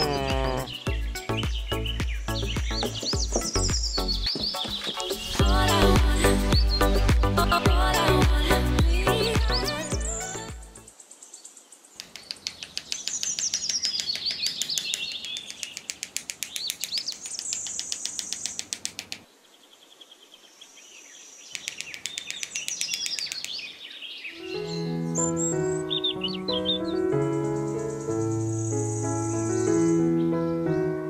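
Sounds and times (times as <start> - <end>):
birds chirping: 0.0 - 31.0
mallet tapping wooden sticks: 2.6 - 5.1, 12.0 - 19.2, 21.6 - 23.6.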